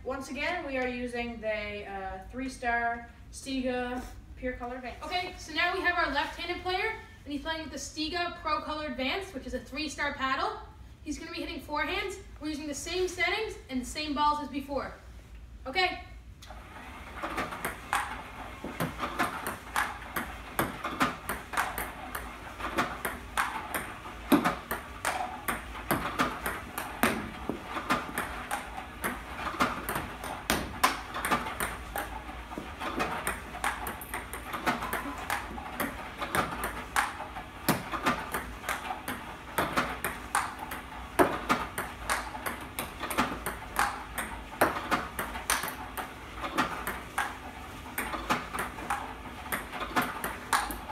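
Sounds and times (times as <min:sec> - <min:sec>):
table tennis balls clicking: 0:16.9 - 0:50.9
balls bouncing on table: 0:17.2 - 0:50.9
paddle hitting ball: 0:17.2 - 0:50.9.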